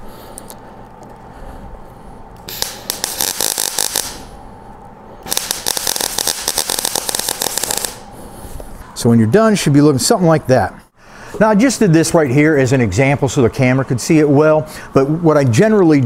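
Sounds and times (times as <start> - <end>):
welder arc crackling: 2.3 - 8.1.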